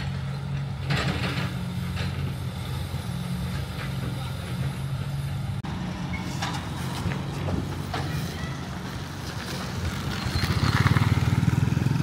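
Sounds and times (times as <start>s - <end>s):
vehicle engine rumbling: 0.0s - 12.0s.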